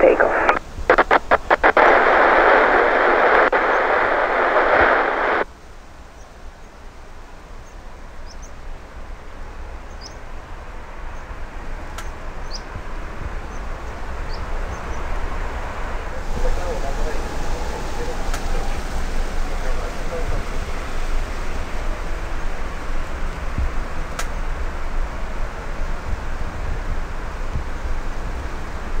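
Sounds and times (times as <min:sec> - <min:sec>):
radio scanner hiss: 0:00.0 - 0:05.5, 0:14.3 - 0:22.2
low outdoor rumble: 0:00.0 - 0:29.0.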